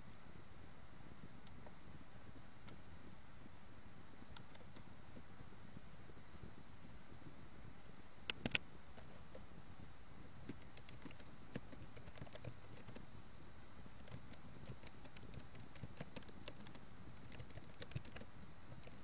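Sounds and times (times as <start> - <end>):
low hiss: 0.0 - 19.0
keyboard typing: 10.5 - 13.0, 14.0 - 19.0.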